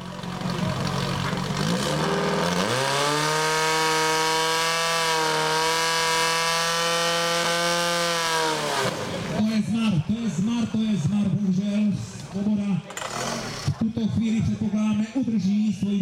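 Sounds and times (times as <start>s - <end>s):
fire pump engine revving: 0.0s - 11.0s, 12.2s - 13.9s.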